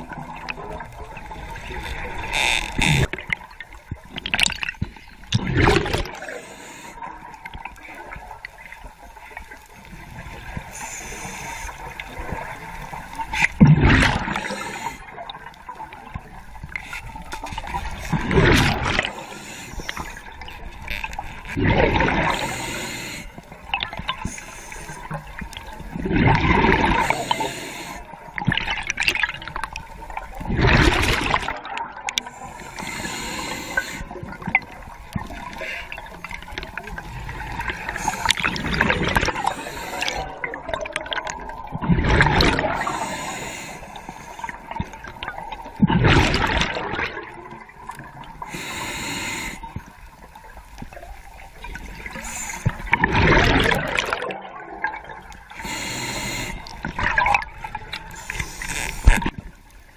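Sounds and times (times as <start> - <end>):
exhaled bubbles gurgling: 0.0 - 59.9
underwater hiss: 5.9 - 7.1, 10.2 - 15.9, 18.8 - 20.4, 22.0 - 23.5, 24.2 - 25.4, 26.8 - 28.1, 32.2 - 36.0, 37.1 - 40.4, 42.6 - 45.0, 48.3 - 50.3, 51.8 - 53.0, 55.5 - 56.9, 57.6 - 59.2.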